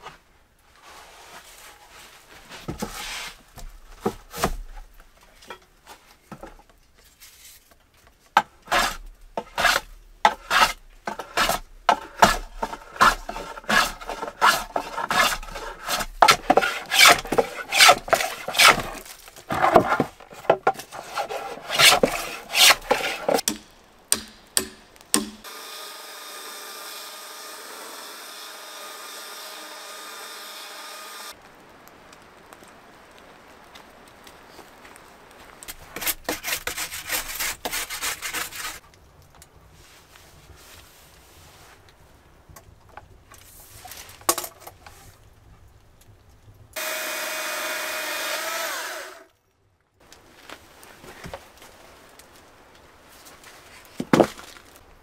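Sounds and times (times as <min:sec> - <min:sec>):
blade scraping wood: 0:00.8 - 0:04.8, 0:08.4 - 0:31.3, 0:35.7 - 0:38.8, 0:46.8 - 0:49.2
chainsaw cutting log: 0:08.4 - 0:31.4, 0:46.8 - 0:49.3.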